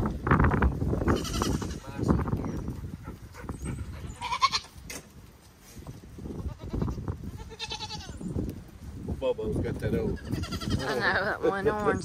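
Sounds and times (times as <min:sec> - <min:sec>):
goats bleating: 0:01.1 - 0:02.0, 0:04.1 - 0:04.8, 0:06.4 - 0:08.2, 0:10.2 - 0:11.4.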